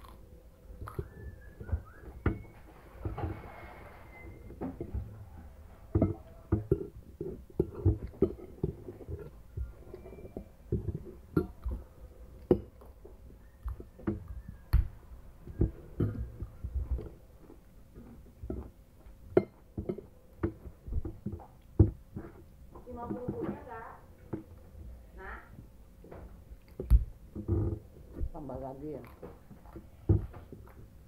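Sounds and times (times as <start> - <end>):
chewing: 0.0 - 3.5, 4.1 - 22.7, 26.4 - 28.2.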